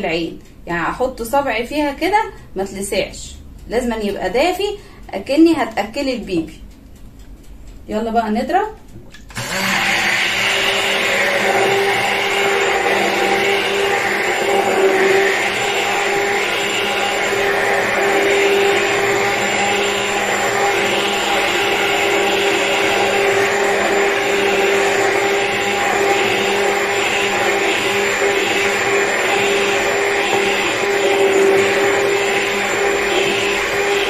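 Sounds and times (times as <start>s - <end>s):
immersion blender motor running: 9.3s - 34.0s.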